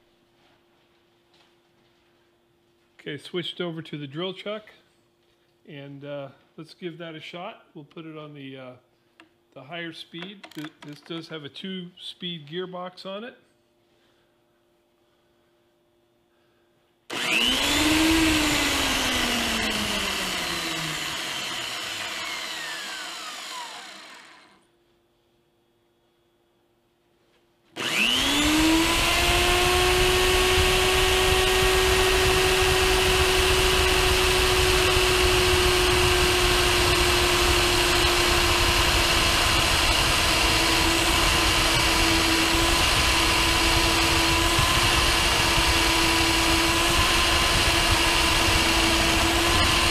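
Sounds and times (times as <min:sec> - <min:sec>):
drill bit cutting steel: 0:17.1 - 0:24.6, 0:27.8 - 0:49.9
drill motor whining: 0:17.1 - 0:24.6, 0:27.8 - 0:49.9.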